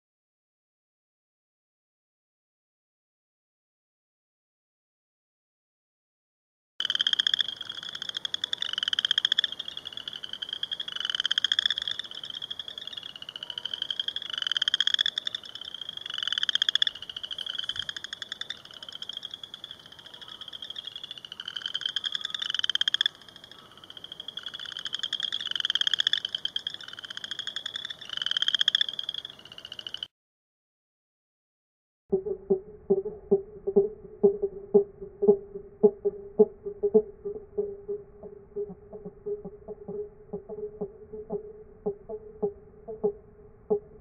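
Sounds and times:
frogs calling in pulsed trills: 6.8s - 30.1s, 32.1s - 44.0s.

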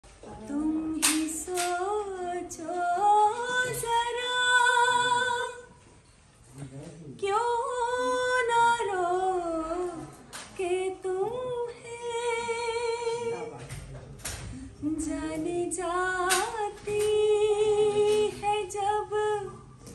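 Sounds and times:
woman singing unaccompanied: 0.2s - 5.8s, 7.2s - 13.4s, 14.6s - 19.9s.

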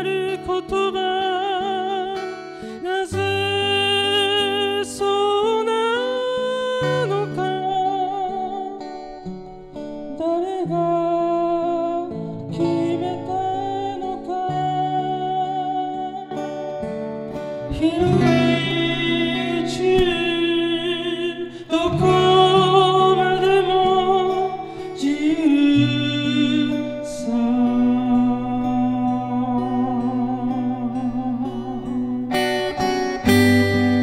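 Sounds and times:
man singing: 0.0s - 9.2s, 10.0s - 16.5s, 17.5s - 34.0s
acoustic guitar: 0.0s - 34.0s.

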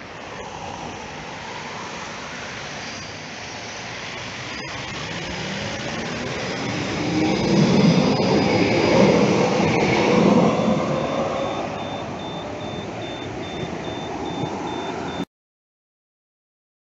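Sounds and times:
tram passing on track: 0.0s - 15.2s
electronic crossing signal beeps: 4.6s - 5.1s, 7.3s - 15.3s.

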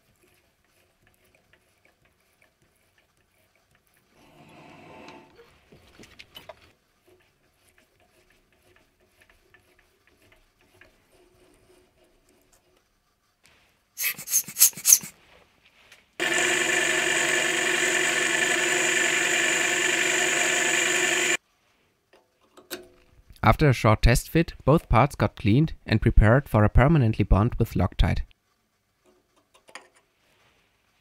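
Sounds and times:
pressurised air nozzle hissing: 14.0s - 15.1s.

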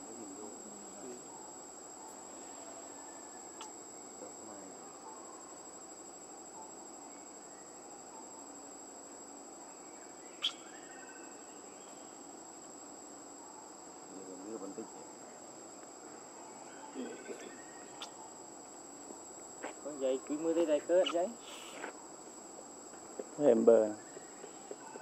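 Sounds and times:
high-pitched insect drone: 2.3s - 4.8s, 9.6s - 12.7s, 14.1s - 22.4s.

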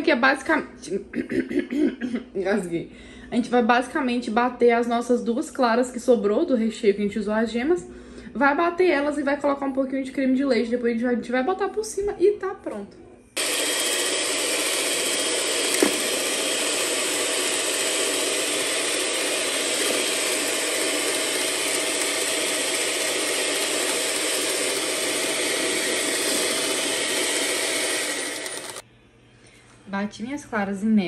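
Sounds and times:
electric mixer whisking: 13.4s - 28.8s.

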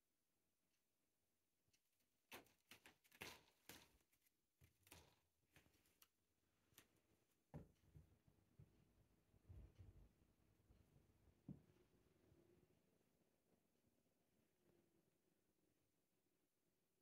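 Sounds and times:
cat claws scratching rope: 1.7s - 7.0s.

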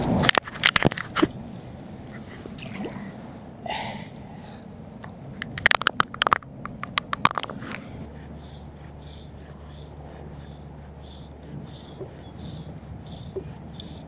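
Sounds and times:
shallow water sloshing: 2.0s - 3.6s.

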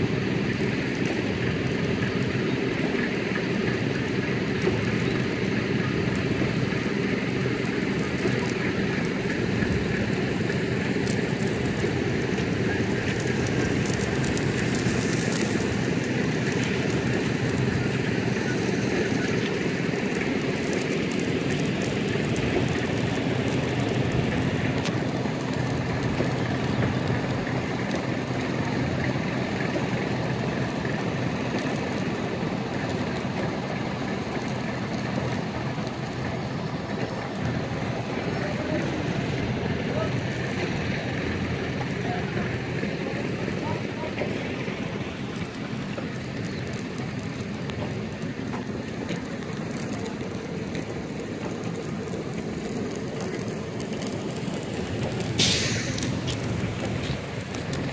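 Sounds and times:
engine-driven pump running: 0.0s - 57.9s
sealer spraying hiss: 55.3s - 57.4s.

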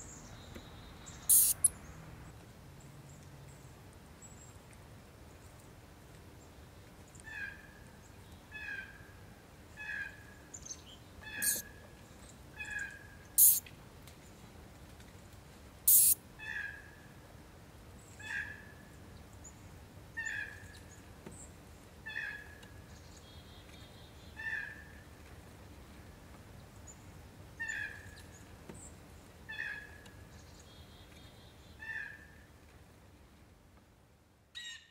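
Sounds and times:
shrew chirping calls: 1.1s - 1.8s, 11.3s - 11.7s, 12.6s - 13.6s, 15.9s - 16.2s.

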